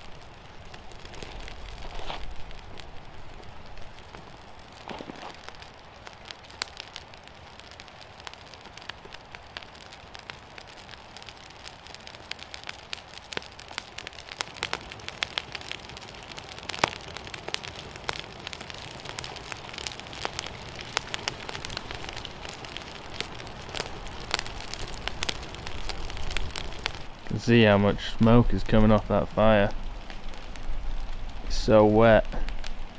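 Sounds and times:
campfire crackling: 0.0s - 32.9s
fire hissing: 0.0s - 32.9s
wood popping in fire: 0.0s - 32.9s.

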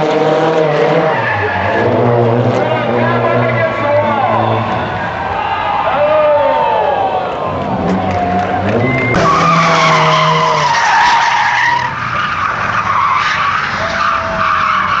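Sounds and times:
car engine revving: 0.0s - 5.2s, 7.5s - 15.0s
tyres screeching: 8.8s - 15.0s.

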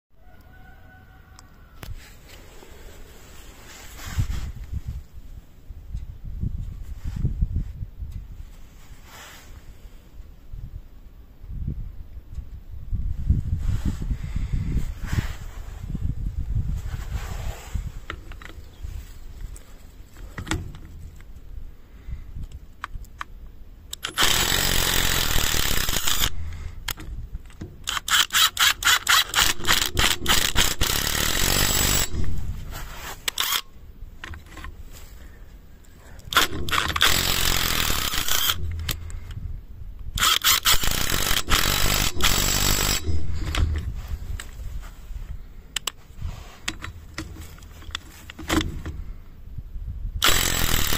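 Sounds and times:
impact wrench hammering: 40.2s - 43.8s, 50.2s - 50.9s.

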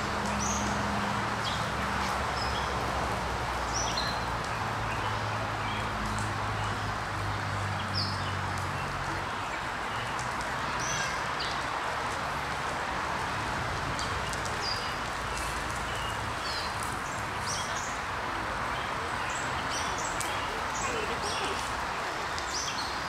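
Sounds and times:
small birds chirping: 14.0s - 23.0s.

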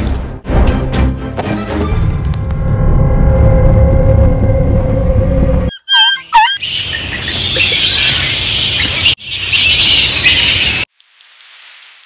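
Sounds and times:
bats squeaking and screeching: 5.7s - 10.9s.

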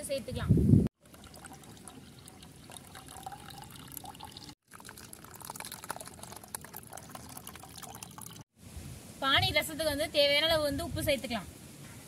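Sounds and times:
liquid trickling into metal vessel: 1.0s - 8.4s.

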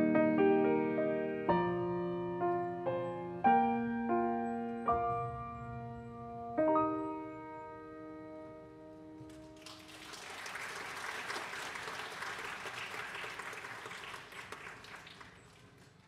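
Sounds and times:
grand piano chord ringing: 0.0s - 9.5s
audience applause: 9.5s - 16.0s.

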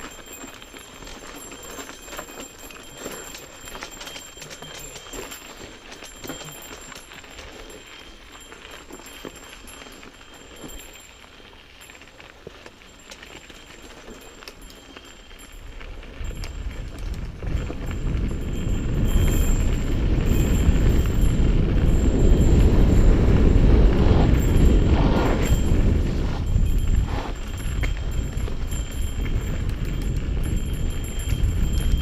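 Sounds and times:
bike rattling over dirt: 0.0s - 32.0s
wind rushing over microphone: 16.2s - 32.0s.

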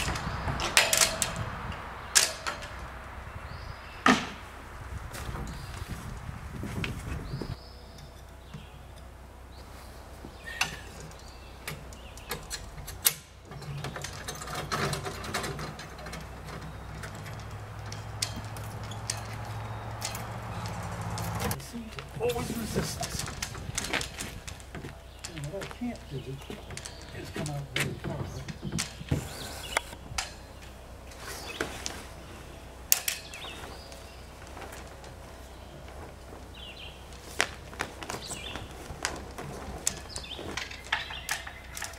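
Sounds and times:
sailboat rigging clicks and knocks: 0.0s - 4.4s, 6.8s - 41.9s
birds chirping: 0.0s - 41.9s.

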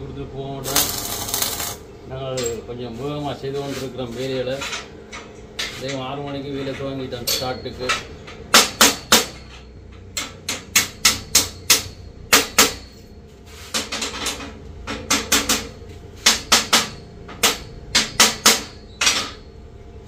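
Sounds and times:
hammer strikes: 7.3s - 13.2s, 14.9s - 19.5s.

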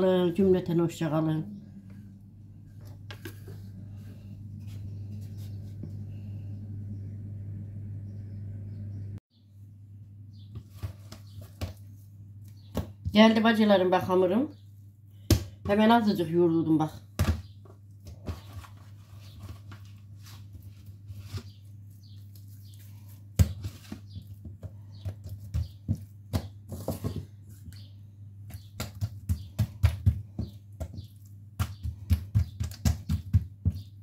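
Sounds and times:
hands patting dough: 17.2s - 34.0s.

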